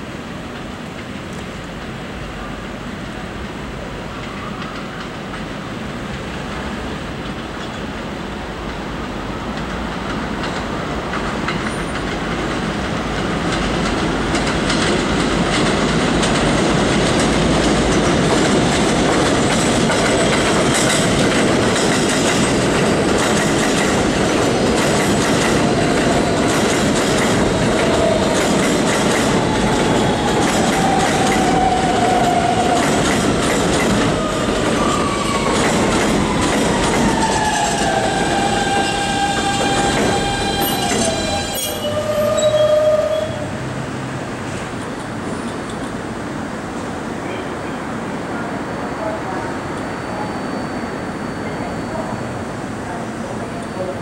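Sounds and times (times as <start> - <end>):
train wheels clacking over rails: 0.4 - 43.3.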